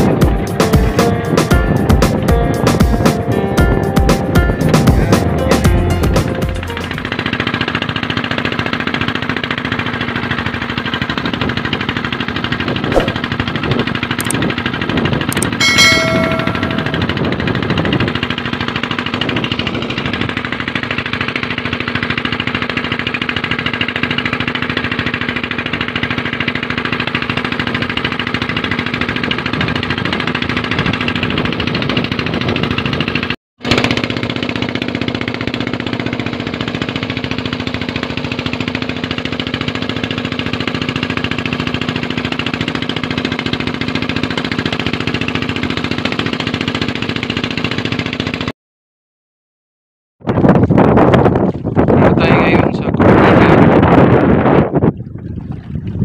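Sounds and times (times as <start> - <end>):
boat engine droning: 0.0 - 48.5.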